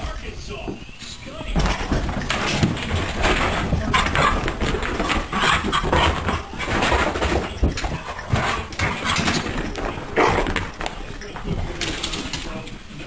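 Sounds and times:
cat and dog fighting cries: 0:03.8 - 0:07.2.

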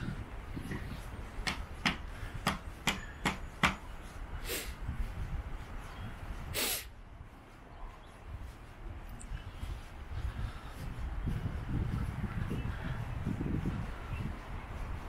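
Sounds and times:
barefoot footsteps on beach: 0:00.0 - 0:15.0
short hissing rushes: 0:04.4 - 0:04.8, 0:06.5 - 0:07.0.

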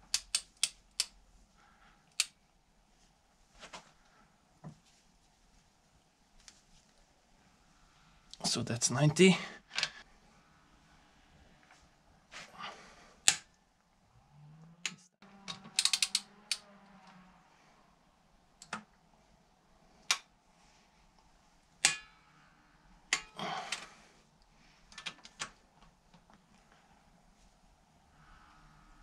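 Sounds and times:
socket wrench clicking on bolts: 0:00.0 - 0:01.1, 0:15.5 - 0:16.6
ratchet clicks: 0:14.9 - 0:16.6.

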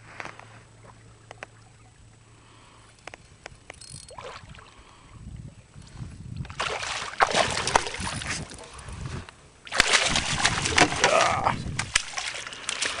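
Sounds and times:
quiet water sounds: 0:00.0 - 0:13.0
small clicks: 0:03.0 - 0:04.1
fish splashing at surface: 0:09.7 - 0:13.0.

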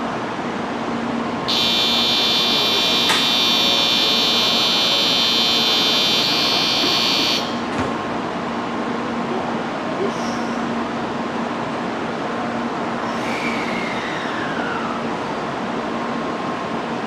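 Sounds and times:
high electric ringing bell: 0:01.5 - 0:07.7.

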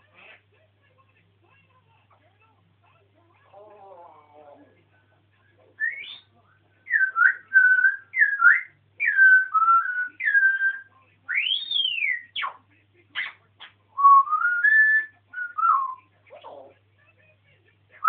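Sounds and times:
parrot whistling: 0:05.8 - 0:06.3, 0:06.9 - 0:12.6, 0:14.0 - 0:16.0
parrot chirps: 0:06.9 - 0:12.6.

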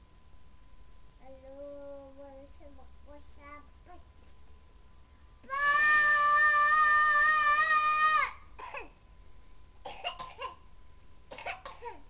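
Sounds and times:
child chanting: 0:01.2 - 0:04.1, 0:05.4 - 0:08.4.

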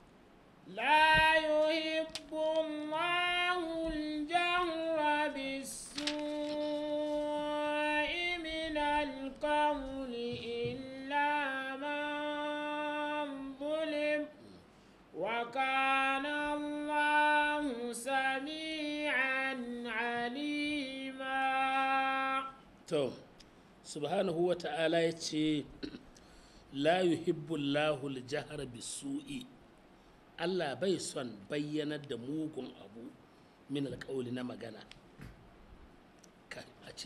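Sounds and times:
man chanting melodically: 0:00.7 - 0:14.6, 0:15.2 - 0:26.0, 0:26.7 - 0:29.6.

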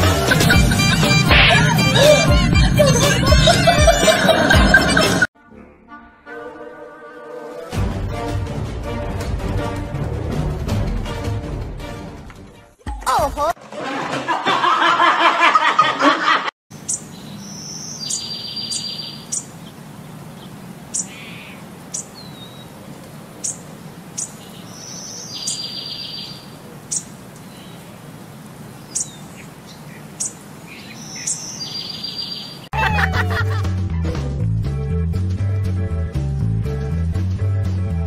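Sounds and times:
music: 0:00.0 - 0:13.5, 0:32.8 - 0:38.0
voices with laughter: 0:00.1 - 0:05.3, 0:13.6 - 0:16.5, 0:32.7 - 0:33.8
songbird chirping: 0:16.7 - 0:32.7
bird buzzy trill call: 0:16.9 - 0:19.5.

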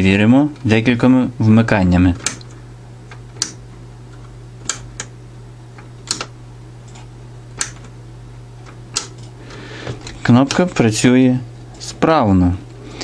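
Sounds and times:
push-button switch clicks: 0:02.2 - 0:03.6, 0:04.2 - 0:05.2, 0:05.8 - 0:06.4, 0:07.6 - 0:08.0, 0:08.6 - 0:09.3.

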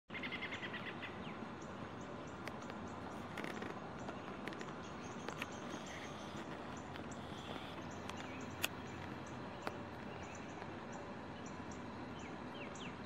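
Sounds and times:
small birds chirping: 0:00.1 - 0:13.0
soft clicks and rustles: 0:02.3 - 0:11.0.

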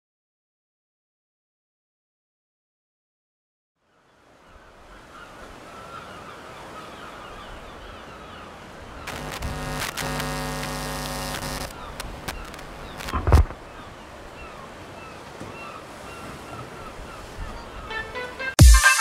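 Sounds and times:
clicks: 0:09.1 - 0:13.5
water lapping: 0:11.7 - 0:18.4.

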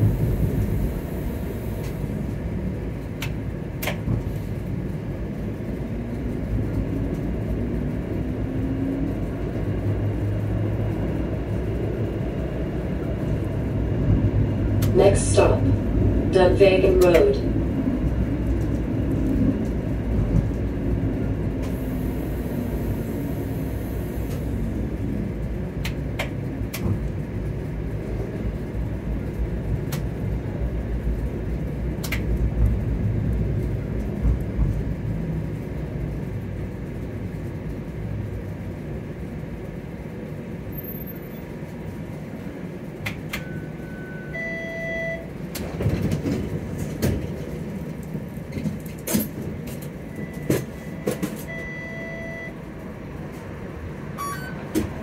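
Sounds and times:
streetcar rumbling on track: 0:00.0 - 0:55.0
short electronic beeps: 0:50.2 - 0:52.6, 0:54.2 - 0:54.7.

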